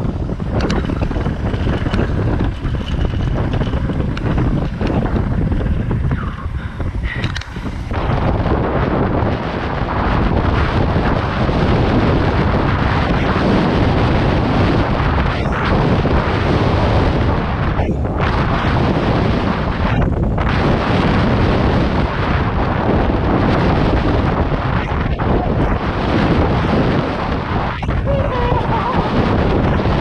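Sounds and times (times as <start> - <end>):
bike tyres rolling over dirt: 0.0 - 30.0
wind buffeting microphone: 0.0 - 30.0
bike clicks and knocks: 0.4 - 6.4, 7.0 - 7.9.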